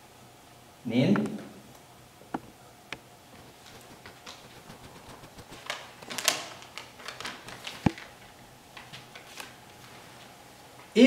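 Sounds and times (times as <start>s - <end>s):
paper rustling: 3.3s - 10.3s.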